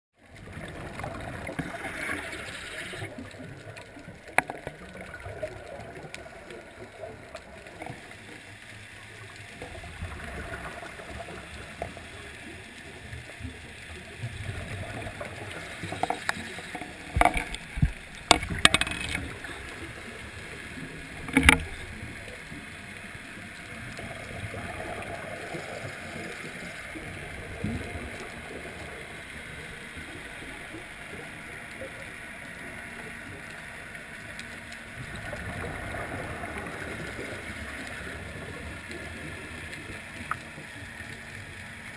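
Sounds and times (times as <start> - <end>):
sharp clicks and knocks: 15.8 - 19.3, 21.2 - 21.8.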